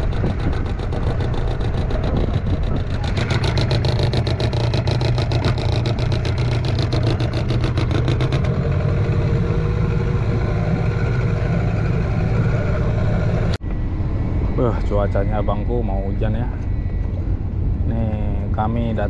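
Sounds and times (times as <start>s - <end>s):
outboard motor running: 0.0s - 13.6s.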